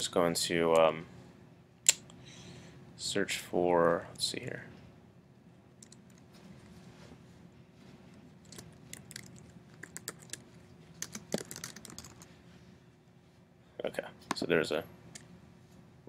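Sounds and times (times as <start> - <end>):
faint keyboard typing: 5.8 - 6.3, 8.4 - 12.3.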